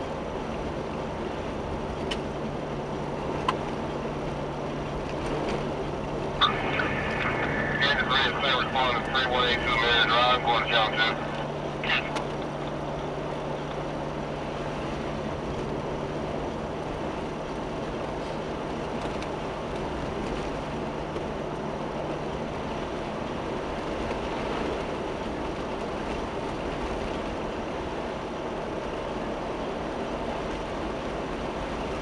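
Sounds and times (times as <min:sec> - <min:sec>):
car engine and tyre rumble: 0:00.0 - 0:32.0
low hum: 0:01.4 - 0:18.4.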